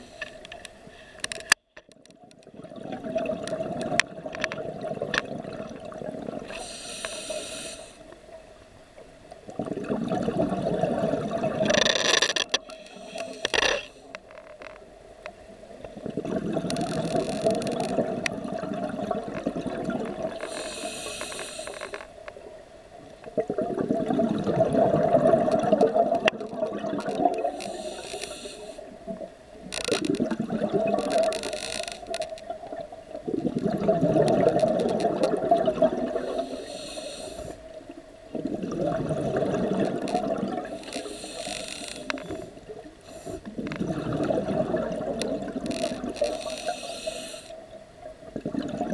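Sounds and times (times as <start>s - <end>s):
regulator inhalation hiss: 0.0s - 0.4s, 6.5s - 8.1s, 12.7s - 14.2s, 20.4s - 22.1s, 27.5s - 28.9s, 36.2s - 37.6s, 40.7s - 43.5s, 46.2s - 47.6s
exhaled bubbles rushing: 2.5s - 6.5s, 9.5s - 11.7s, 15.9s - 20.4s, 23.4s - 27.6s, 30.0s - 31.4s, 32.6s - 36.5s, 38.3s - 40.8s, 43.5s - 46.2s, 48.2s - 48.9s.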